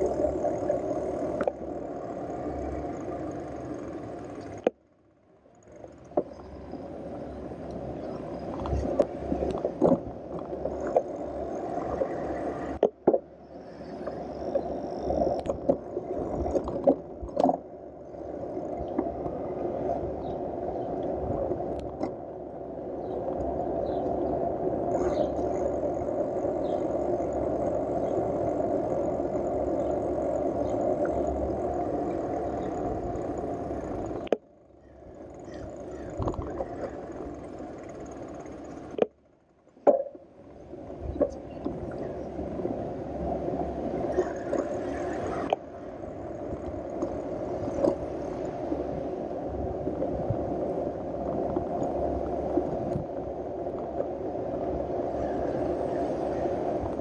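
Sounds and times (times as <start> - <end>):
bicycle rattling over bumps: 0.0 - 19.2, 24.9 - 42.3
wind and tyre noise: 0.0 - 57.0.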